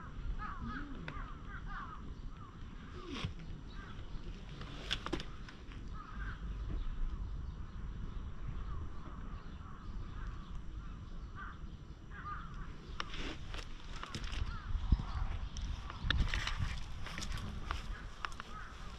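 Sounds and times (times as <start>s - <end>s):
crows cawing: 0.0s - 3.0s, 3.7s - 4.2s, 5.2s - 6.8s, 8.6s - 16.1s, 16.7s - 18.9s
steady low rumble: 0.0s - 18.9s.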